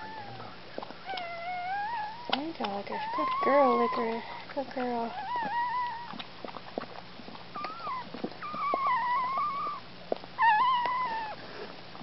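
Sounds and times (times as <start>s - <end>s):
puppy crying in high squeals: 1.1s - 2.3s, 3.0s - 4.1s, 5.1s - 6.2s, 7.6s - 9.8s, 10.4s - 11.4s
dog licking wet clicks: 2.3s - 10.9s.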